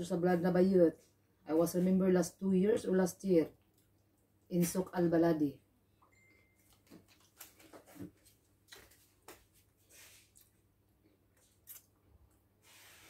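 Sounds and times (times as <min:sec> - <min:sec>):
people eating with hands: 0:08.6 - 0:12.5.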